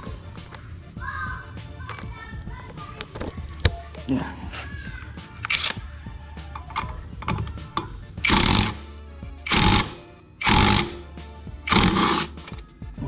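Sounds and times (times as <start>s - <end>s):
impact wrench hammering: 7.3s - 11.1s, 11.7s - 12.6s.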